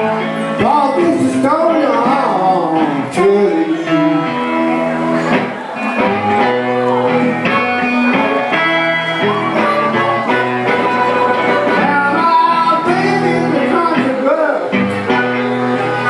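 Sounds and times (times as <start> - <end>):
picked guitar: 0.0 - 16.0
blues harmonica: 3.6 - 13.8.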